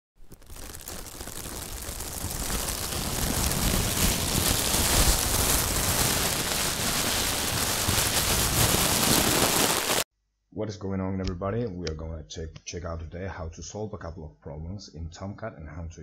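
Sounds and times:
dense crackling hissing noise: 0:00.2 - 0:10.1.

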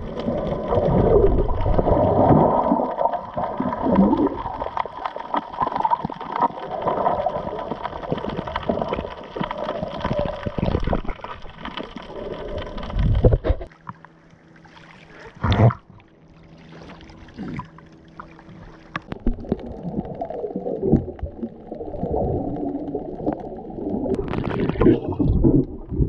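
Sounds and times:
dull bassy underwater sound: 0:00.0 - 0:26.0
muffled water gurgling and swishing: 0:00.0 - 0:26.0
steady low hum: 0:10.8 - 0:26.0.

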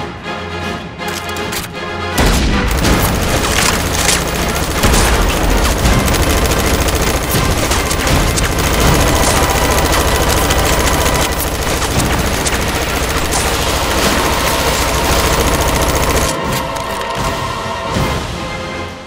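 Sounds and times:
toy blaster rapid fire: 0:02.7 - 0:17.1.

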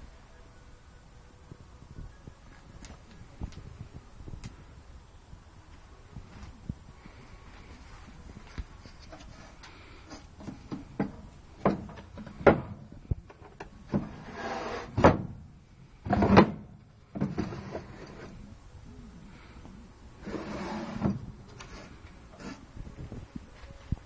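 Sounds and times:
knocks and clunks in cupboard: 0:10.4 - 0:12.9, 0:14.9 - 0:15.4, 0:16.1 - 0:17.8.

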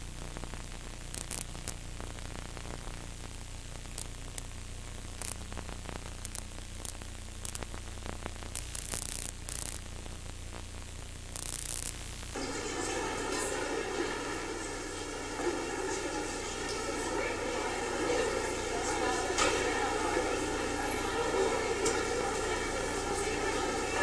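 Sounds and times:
static hiss: 0:00.0 - 0:24.0
low hum: 0:12.4 - 0:24.0.

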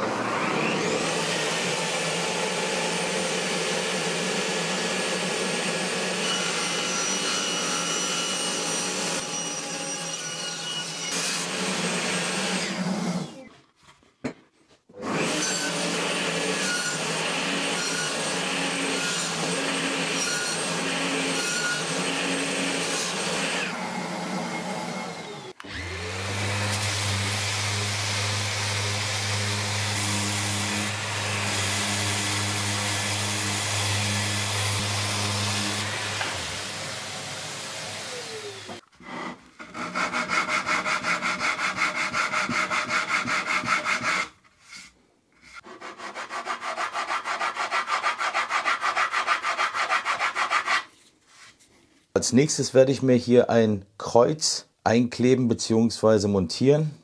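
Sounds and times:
power tool rubbing on wood: 0:25.2 - 0:44.3
hand sanding wood: 0:38.2 - 0:51.5.

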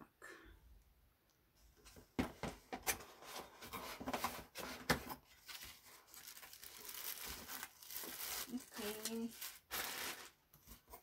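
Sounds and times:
packaging crinkling: 0:05.4 - 0:10.4.

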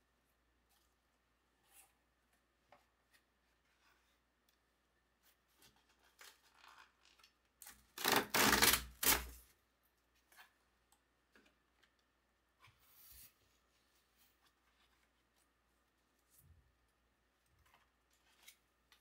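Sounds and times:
cardboard tear strip ripping: 0:06.2 - 0:09.4.

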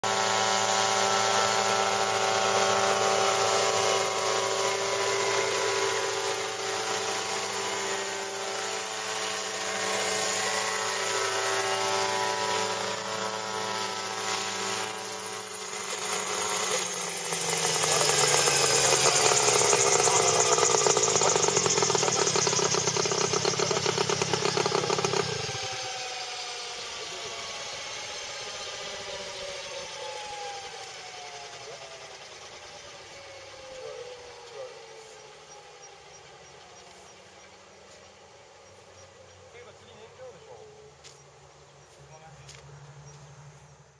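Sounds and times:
helicopter engine and rotor: 0:00.0 - 0:40.7.

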